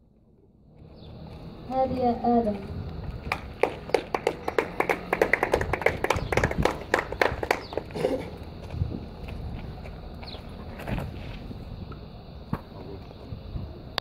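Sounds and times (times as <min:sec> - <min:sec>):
audience clapping: 0:03.1 - 0:08.1.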